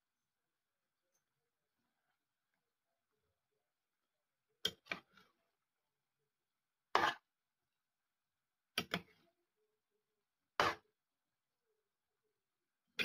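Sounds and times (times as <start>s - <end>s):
metal utensil scraping a pan: 6.9s - 7.3s, 10.6s - 10.8s.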